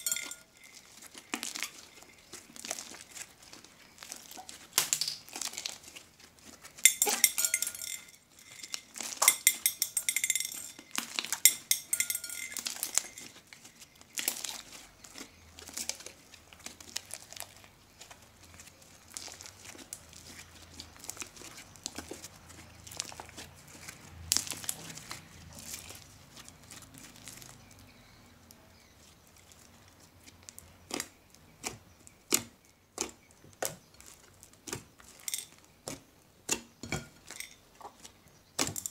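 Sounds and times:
slime crackling and popping: 0.0 - 7.2, 8.4 - 9.3, 10.8 - 11.6, 12.5 - 27.8, 29.4 - 38.9
sharp slime pops: 4.7 - 5.4.

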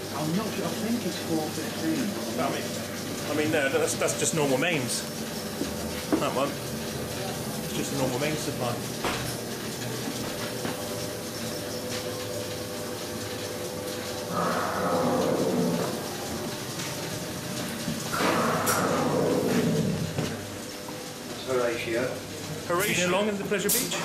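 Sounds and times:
machinery humming: 0.0 - 24.0
motor-driven wheels spinning: 11.2 - 17.2
rushing swells: 14.3 - 16.6, 18.1 - 19.9.

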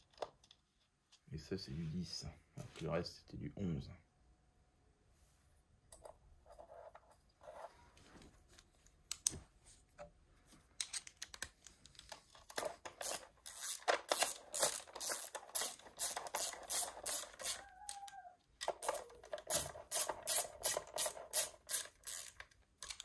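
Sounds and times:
hand ratchet clicking: 13.0 - 17.7, 18.6 - 23.0.

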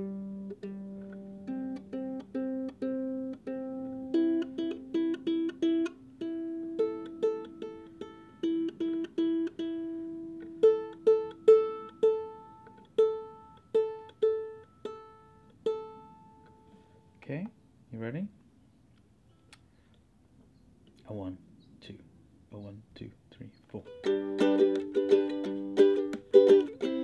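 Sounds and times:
ukulele plucked notes: 0.0 - 16.9, 23.8 - 27.0.

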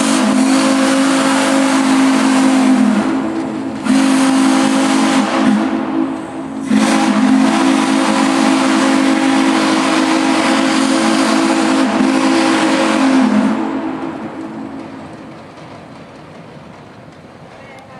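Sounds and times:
steam whistle blowing: 0.0 - 14.3.

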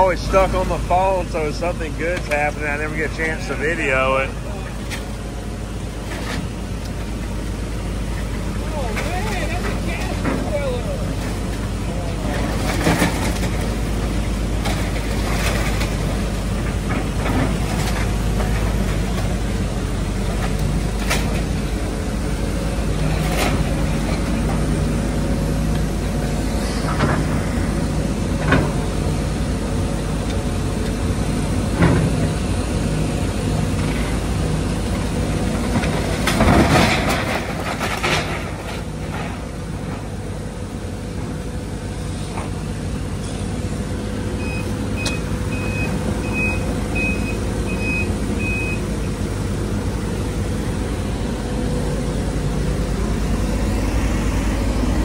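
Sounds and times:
excavator engine and hydraulics: 0.0 - 55.0
debris falling: 35.5 - 39.6
timber splintering and crashing: 35.8 - 39.5.

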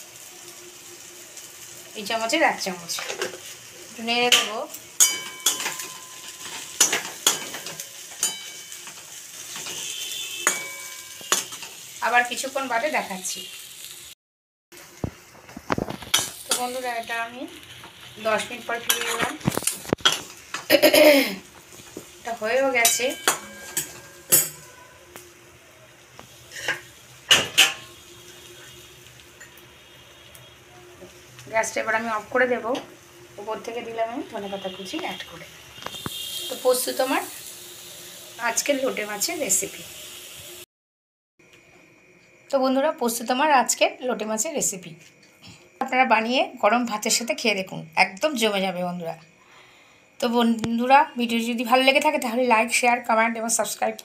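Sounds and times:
food sizzling: 0.0 - 40.7, 41.5 - 54.0
spatula knocking ringing pan: 4.3 - 9.0, 10.4 - 11.6, 22.8 - 24.9
spatula scraping pan: 26.5 - 27.9.

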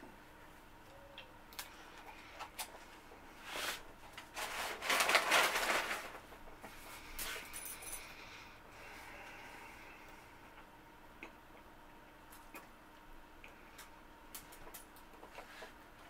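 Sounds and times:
rustling: 2.7 - 7.6.

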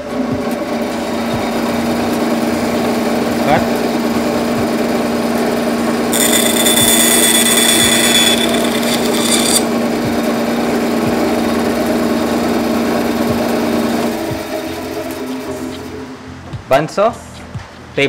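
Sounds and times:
bandsaw motor hum: 6.0 - 10.4
blade cutting wooden board: 6.1 - 9.7.

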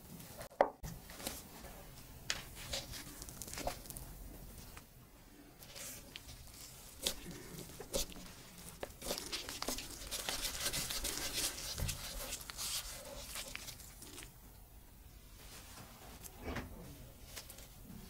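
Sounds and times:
dough rubbing on wooden table: 5.7 - 14.2.

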